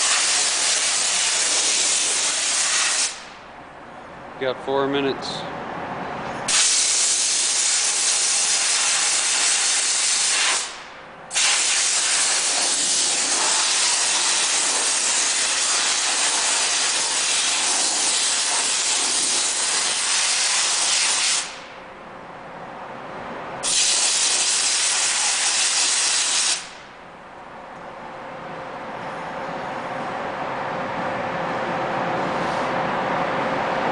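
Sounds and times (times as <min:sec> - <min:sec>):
steam cleaner hissing: 0:00.0 - 0:03.3, 0:06.5 - 0:21.6, 0:23.6 - 0:26.7.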